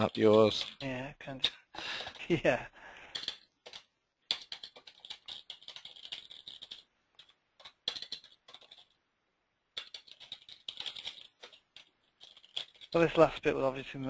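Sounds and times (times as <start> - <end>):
computer keyboard typing: 3.2 - 8.9, 9.8 - 13.0.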